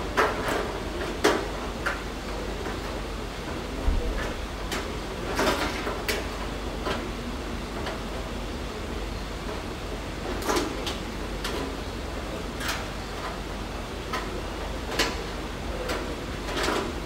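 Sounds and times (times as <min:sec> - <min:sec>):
low workshop hum: 0:00.0 - 0:17.0.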